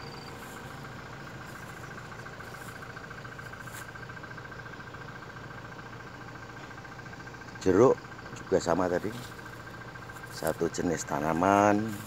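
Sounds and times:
low hum: 0.0 - 7.2.

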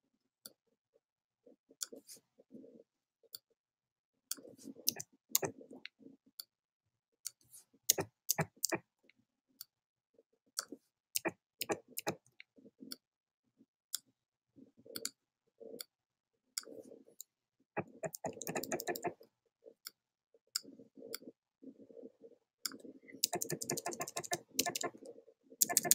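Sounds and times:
computer mouse clicks: 4.3 - 5.8, 7.3 - 8.8, 10.6 - 13.0, 16.6 - 19.3, 22.7 - 25.9
keyboard key presses: 4.9 - 5.6, 7.9 - 8.8, 11.2 - 12.2, 17.8 - 19.2, 22.7 - 25.0, 25.6 - 25.9.

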